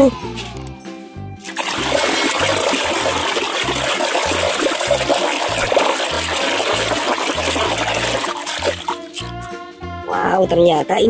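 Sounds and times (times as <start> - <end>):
soapy water sloshing in basin: 1.5 - 9.2.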